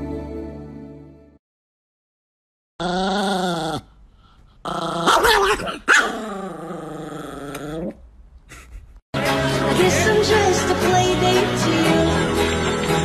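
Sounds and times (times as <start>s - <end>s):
small dog growling: 2.8s - 4.0s, 4.6s - 8.0s.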